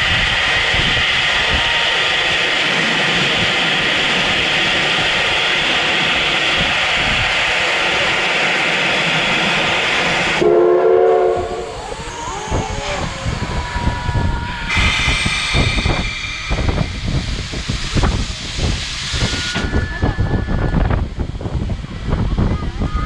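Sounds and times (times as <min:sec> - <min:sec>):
locomotive steam hissing: 0:00.0 - 0:23.0
steam whistle blast: 0:10.4 - 0:11.8.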